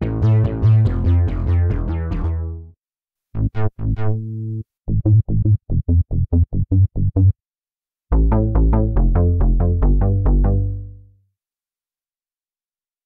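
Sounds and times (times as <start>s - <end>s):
fast staccato synth bass riff: 0.0s - 2.6s, 3.4s - 7.3s, 8.1s - 10.9s
synth bass phrase: 0.0s - 2.7s, 3.4s - 7.3s, 8.1s - 11.0s.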